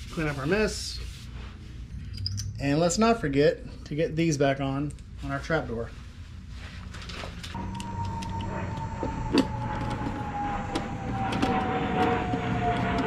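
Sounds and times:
aircraft flying over: 7.6s - 13.0s.

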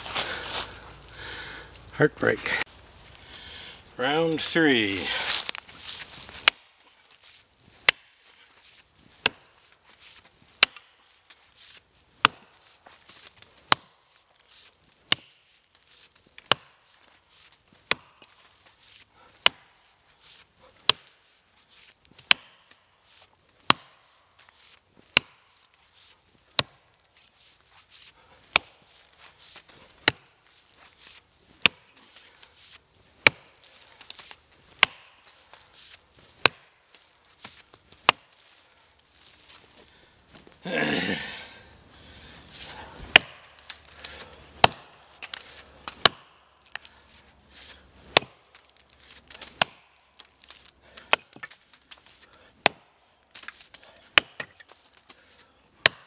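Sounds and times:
faint rustle and wood chips: 0.0s - 55.7s
axe chopping into roots: 5.3s - 6.8s, 7.8s - 8.3s, 9.2s - 9.5s, 10.6s - 11.0s, 12.2s - 14.0s, 15.1s - 15.4s, 16.4s - 16.9s, 17.8s - 18.5s, 19.4s - 19.8s, 20.8s - 21.2s, 22.2s - 22.7s, 23.6s - 24.1s, 25.1s - 25.7s, 26.5s - 27.0s, 28.4s - 30.9s, 31.6s - 32.4s, 33.2s - 35.4s, 36.2s - 36.8s, 37.4s - 38.5s, 42.6s - 46.9s, 48.1s - 52.0s, 52.6s - 55.2s, 55.8s - 56.0s.

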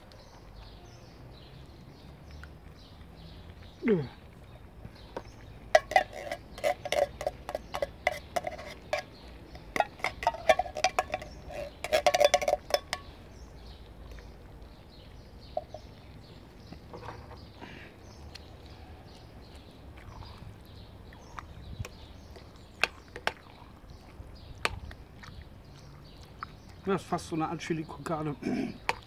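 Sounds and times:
metal spoon scraping in tin can: 5.8s - 13.1s.

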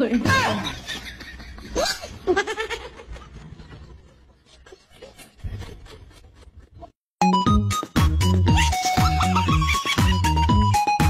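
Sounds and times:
loud electronic music: 7.2s - 11.0s.

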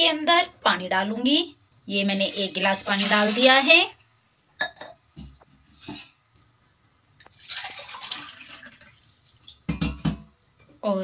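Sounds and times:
water pouring and splashing: 2.1s - 3.7s, 7.2s - 9.7s.

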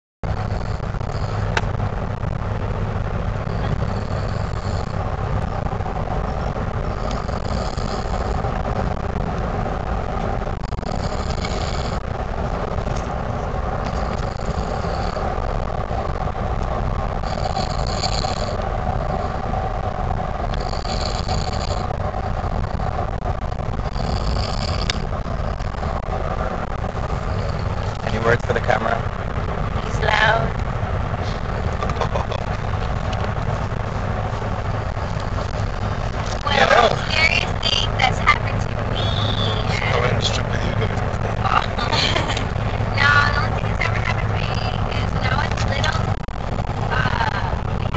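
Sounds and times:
road noise inside car: 0.2s - 47.9s
man snoring: 3.4s - 5.0s, 6.9s - 8.5s, 10.7s - 12.1s, 13.9s - 15.2s, 17.2s - 19.4s, 20.5s - 21.9s, 23.8s - 25.8s.

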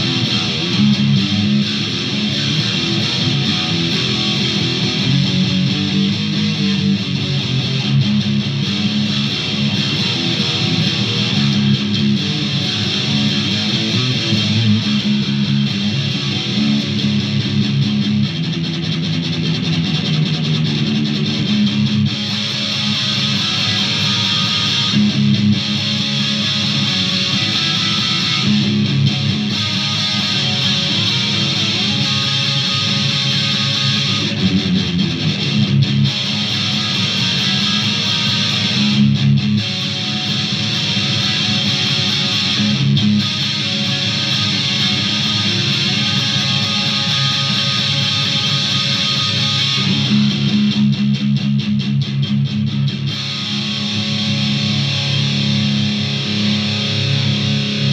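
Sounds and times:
electric guitar riffs: 0.0s - 57.9s.

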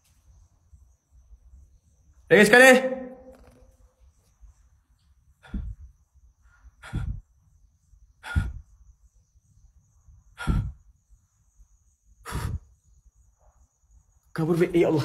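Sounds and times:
man breathing heavily: 5.3s - 9.0s, 10.2s - 11.2s, 12.1s - 13.0s.

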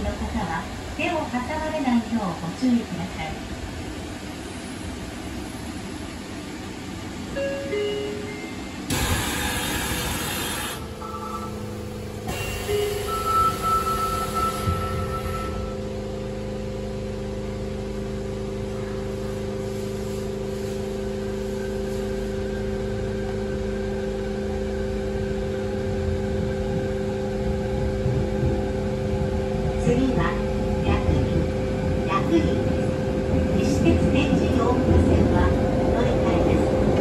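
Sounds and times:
train electrical equipment humming: 0.0s - 37.0s
high electronic door chime: 12.4s - 15.8s.

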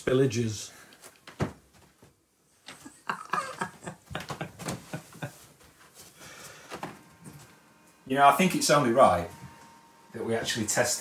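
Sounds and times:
people laughing: 2.8s - 5.5s.

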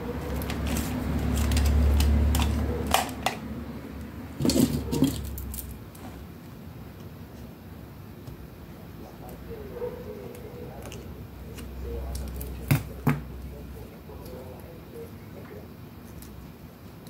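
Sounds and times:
tools clicking and clattering: 0.3s - 3.5s, 4.4s - 5.7s.

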